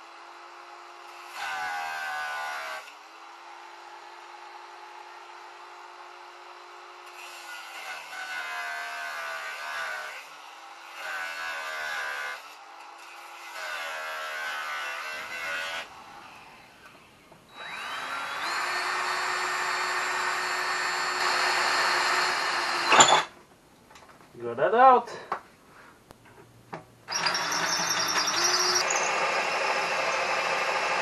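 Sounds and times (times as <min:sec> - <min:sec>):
angle grinder cutting metal: 0:01.0 - 0:03.1, 0:07.0 - 0:23.3, 0:27.1 - 0:31.0
cordless drill whine: 0:16.8 - 0:23.3, 0:27.1 - 0:31.0.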